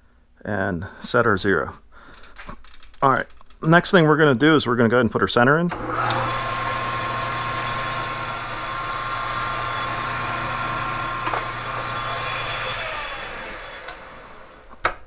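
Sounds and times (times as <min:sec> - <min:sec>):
drill boring into steel bar: 0:05.7 - 0:14.8
metal lathe humming and whining: 0:05.7 - 0:14.8.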